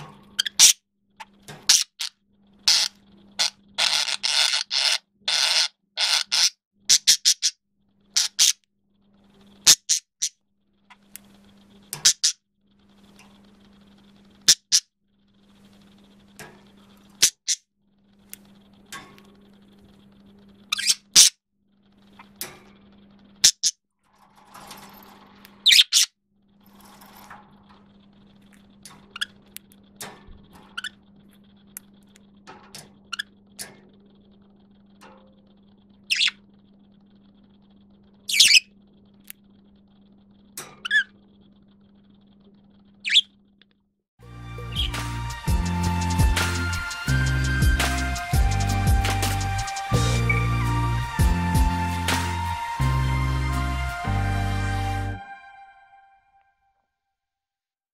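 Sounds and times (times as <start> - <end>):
budgerigar squeaky calls: 2.7 - 7.6, 20.7 - 21.3, 36.1 - 36.4, 38.3 - 38.7, 43.0 - 43.3.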